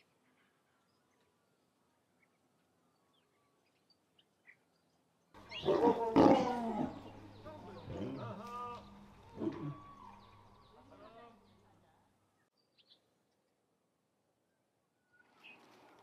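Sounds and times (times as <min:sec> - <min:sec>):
lion growling: 0:05.5 - 0:08.6, 0:09.3 - 0:09.8.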